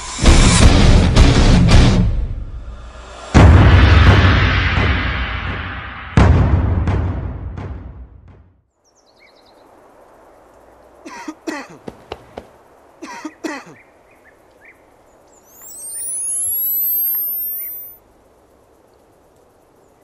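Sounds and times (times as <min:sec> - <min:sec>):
faint outdoor background: 0:02.0 - 0:20.0
person coughing: 0:11.1 - 0:11.9, 0:13.0 - 0:13.8
electronic whistling sweep effect: 0:15.5 - 0:18.0.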